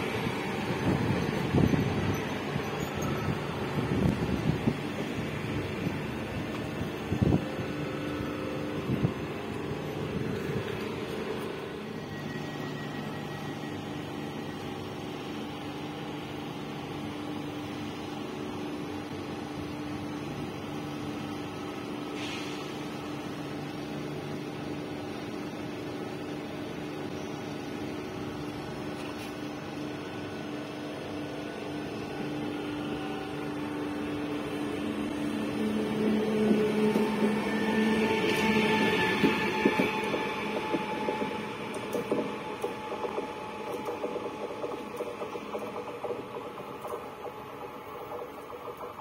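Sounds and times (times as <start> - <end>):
electric train humming: 0.0 - 49.0.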